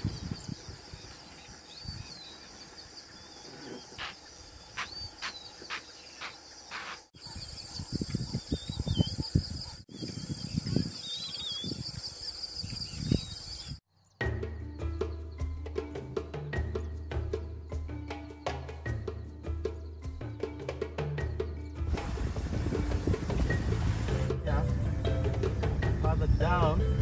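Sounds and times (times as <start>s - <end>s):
crickets trilling: 0.0s - 14.2s
bird chirping calls: 0.0s - 15.7s.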